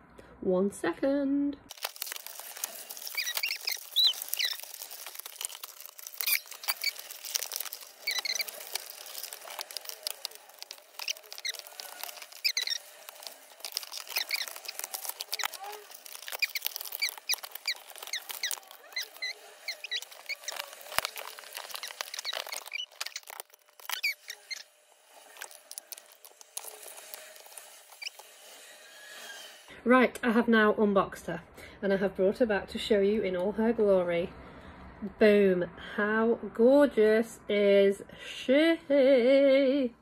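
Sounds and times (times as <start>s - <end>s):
packaging clicks and squeaks: 1.7s - 28.4s.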